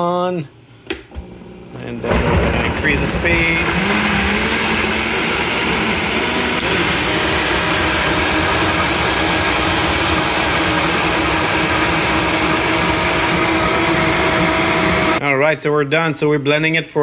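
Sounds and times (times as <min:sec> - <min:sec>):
blender whirring at high speed: 0:02.1 - 0:15.2.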